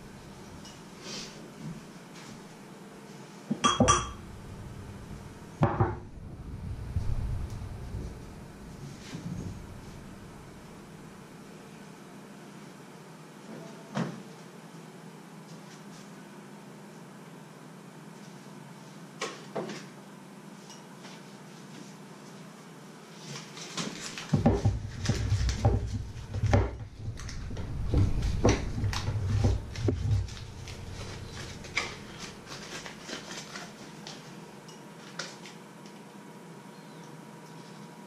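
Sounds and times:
foil wrapper crinkling: 0:27.1 - 0:34.4.

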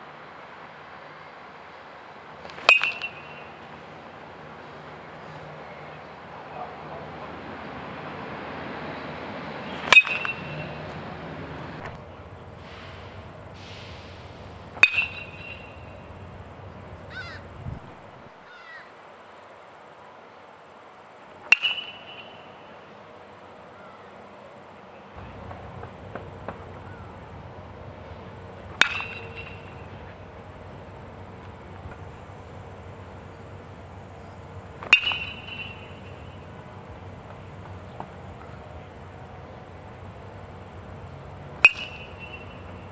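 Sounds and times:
baseball bat hitting ball: 0:02.4 - 0:03.8, 0:09.7 - 0:11.0, 0:14.8 - 0:16.0, 0:21.4 - 0:22.4, 0:28.7 - 0:29.9, 0:34.8 - 0:36.3, 0:41.6 - 0:42.9.

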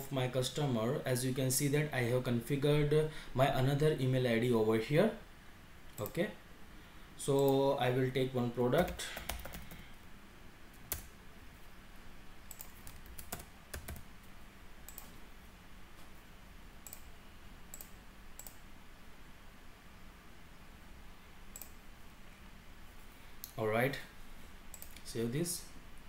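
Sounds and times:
faint steady hum: 0:00.0 - 0:26.0
mouse clicks: 0:16.8 - 0:17.1, 0:21.5 - 0:21.8.

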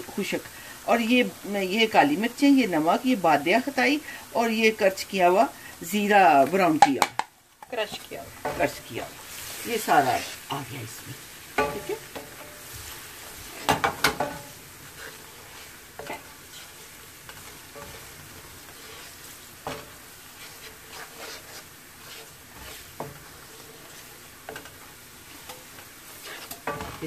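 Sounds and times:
onions and spices sizzling in pan: 0:00.0 - 0:27.0
wooden spatula scraping pan: 0:07.8 - 0:10.6, 0:11.2 - 0:27.0.

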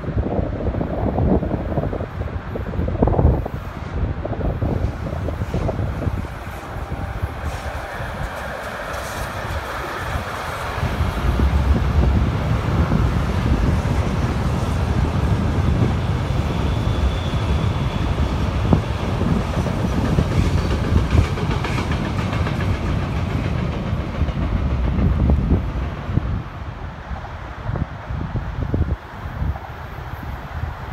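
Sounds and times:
train wheels rumbling on rails: 0:00.0 - 0:30.9
wind buffeting microphone: 0:00.0 - 0:30.9
train clatter: 0:04.6 - 0:26.2.

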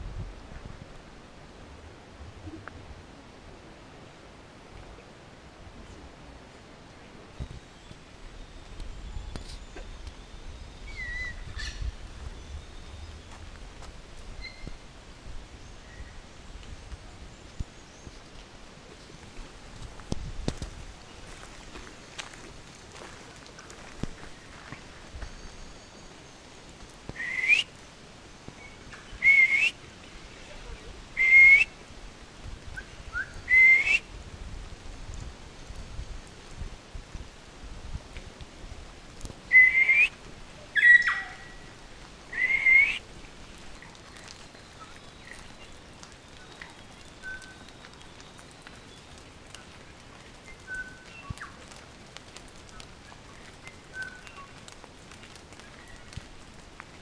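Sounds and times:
faint steady hiss: 0:00.0 - 0:57.0
birds whistling: 0:09.4 - 0:11.8, 0:27.2 - 0:27.7, 0:28.6 - 0:29.7, 0:31.2 - 0:31.7, 0:32.8 - 0:34.0, 0:39.5 - 0:40.1, 0:40.8 - 0:41.5, 0:42.3 - 0:43.0
person whistling: 0:27.2 - 0:27.6, 0:29.2 - 0:29.7, 0:31.2 - 0:31.6, 0:33.5 - 0:34.0.

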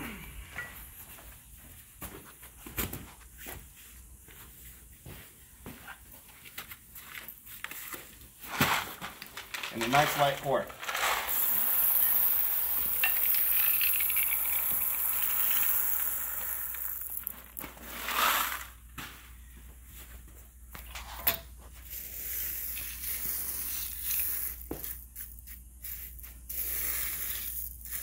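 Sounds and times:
gravel pouring from plastic bucket: 0:08.5 - 0:18.7.

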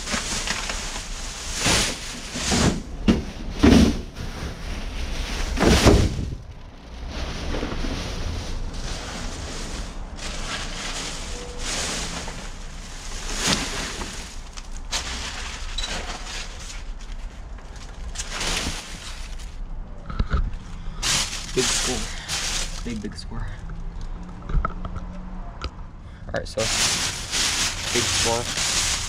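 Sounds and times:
plastic bags rustling and crinkling: 0:00.0 - 0:19.7, 0:20.6 - 0:23.6, 0:26.5 - 0:29.0
bag thumping down: 0:05.5 - 0:06.4.

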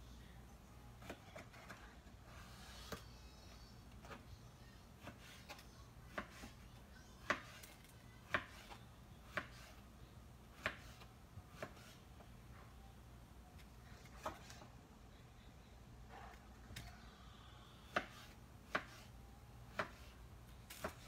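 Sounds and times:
knife chopping on cutting board: 0:08.3 - 0:09.8, 0:10.5 - 0:12.0, 0:17.9 - 0:19.1, 0:19.7 - 0:20.1.

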